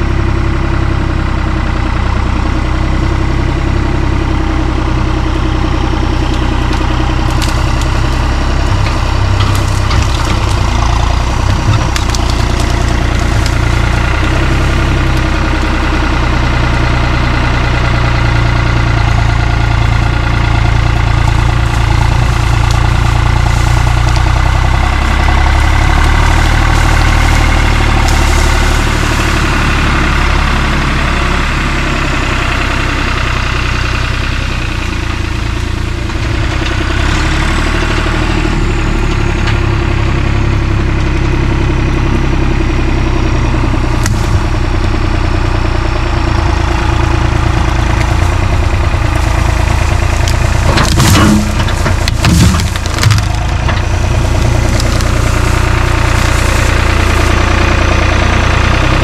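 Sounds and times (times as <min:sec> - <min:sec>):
tractor engine running: 0:00.0 - 0:59.0
branches cracking and crunching: 0:05.2 - 0:33.9, 0:43.5 - 0:58.8.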